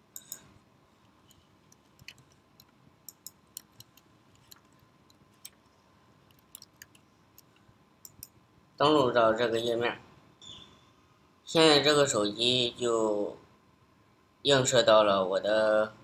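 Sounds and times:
mouse clicks: 1.3s - 5.6s, 6.3s - 8.4s
computer keyboard keystrokes: 6.3s - 8.3s.

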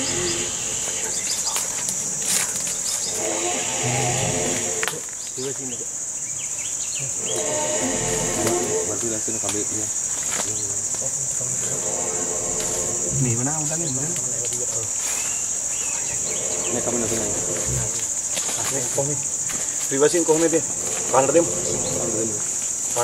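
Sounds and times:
low wavering voices: 0.0s - 5.1s, 7.0s - 9.4s, 11.2s - 15.2s, 15.9s - 18.8s, 20.3s - 23.0s
insects droning: 0.0s - 23.0s.

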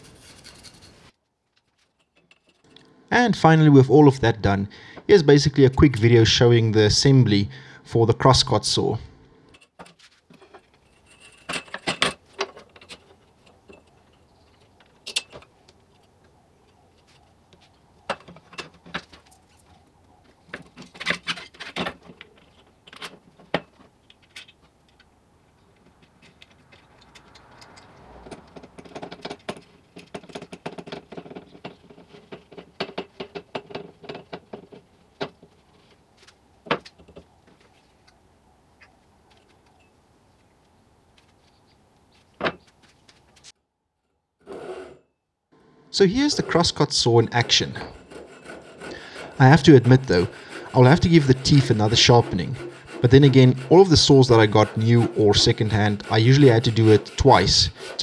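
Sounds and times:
saw parts clinking and knocking: 1.6s - 2.8s, 9.5s - 15.6s, 25.7s - 35.6s.

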